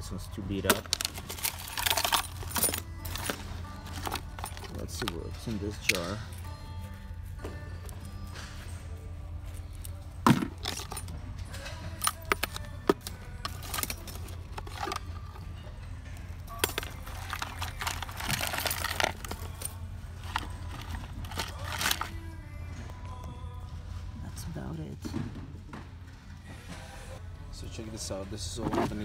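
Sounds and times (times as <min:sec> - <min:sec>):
metal tackle clinking and rattling: 0:00.5 - 0:06.6, 0:09.5 - 0:22.3.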